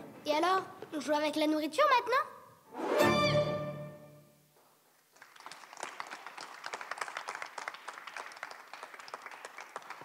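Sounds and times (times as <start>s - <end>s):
audience applauding: 5.1s - 10.0s.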